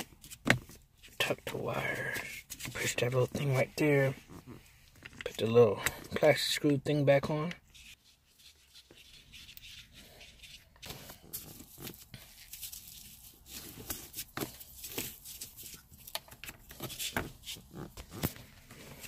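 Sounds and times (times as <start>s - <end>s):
rustling of wire and insulation: 7.7s - 19.0s.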